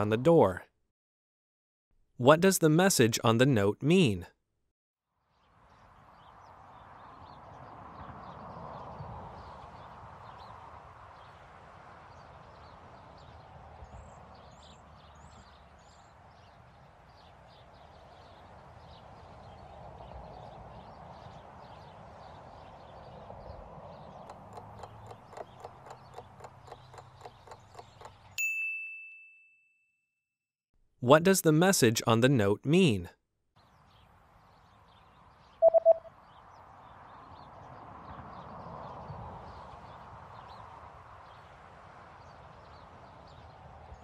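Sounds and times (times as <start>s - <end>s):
rapid clock ticking: 24.3s - 28.4s
bright ding: 35.6s - 36.1s.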